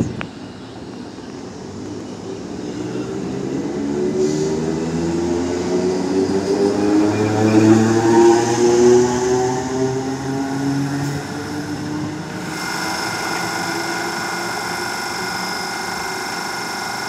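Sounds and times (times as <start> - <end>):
electric train motors whining: 5.0 - 17.0.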